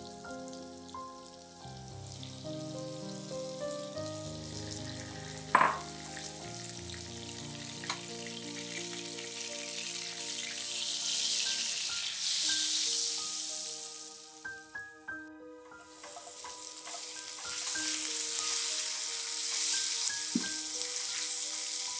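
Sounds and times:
butter sizzling in a frying pan: 0:00.0 - 0:14.7, 0:15.8 - 0:21.9
background music: 0:00.0 - 0:21.9
spatula stirring: 0:16.0 - 0:21.8.

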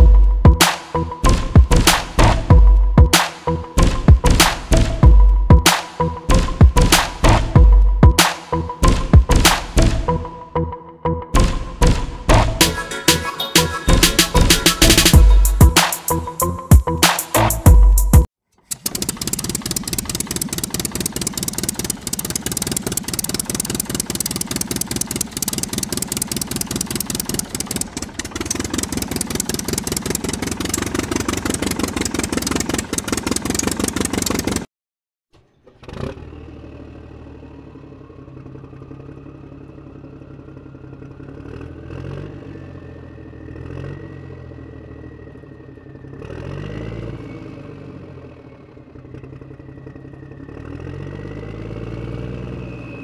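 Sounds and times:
toy car rattling: 0:18.5 - 0:34.7.

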